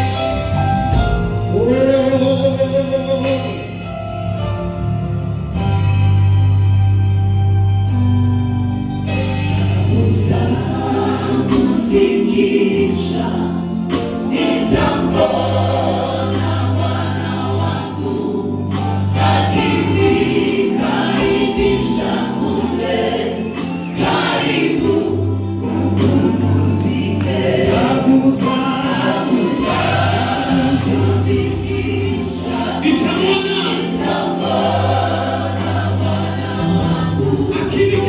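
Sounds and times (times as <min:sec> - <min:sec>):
gospel choir singing: 0:00.0 - 0:08.1, 0:09.0 - 0:38.0
low bass notes: 0:00.0 - 0:23.1
live band: 0:00.0 - 0:38.0.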